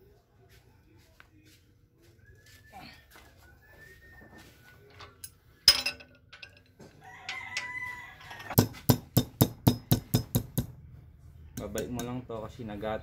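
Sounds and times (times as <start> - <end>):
metallic clank: 5.0 - 6.7
rooster crowing: 6.8 - 8.6.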